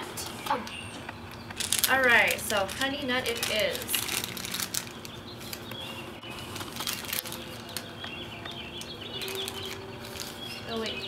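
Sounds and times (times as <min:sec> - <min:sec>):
small birds chirping: 0:00.2 - 0:11.0
plastic bag crinkling: 0:01.6 - 0:07.9, 0:08.8 - 0:11.0.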